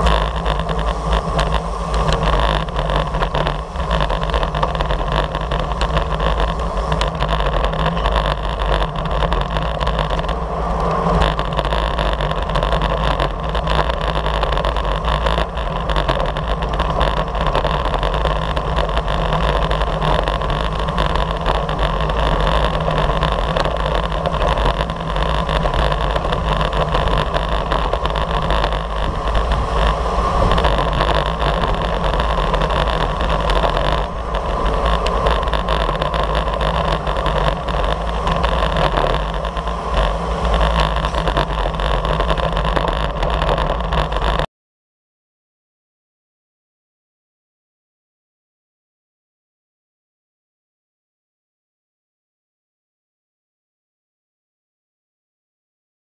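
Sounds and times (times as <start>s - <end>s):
tyre and road noise: 0.0s - 44.5s
wind rush on microphone: 0.0s - 44.5s.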